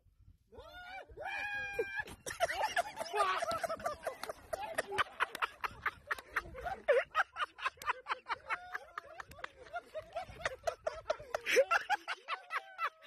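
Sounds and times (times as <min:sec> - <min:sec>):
people laughing: 0:01.0 - 0:13.0
people talking: 0:02.3 - 0:13.0.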